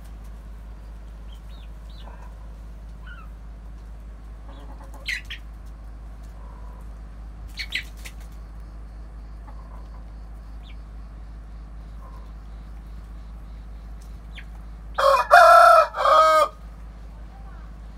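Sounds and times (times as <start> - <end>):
chickens clucking: 0.0 - 17.9
chicken squawks: 3.0 - 3.4, 4.4 - 5.5, 7.5 - 8.3, 14.3 - 16.6.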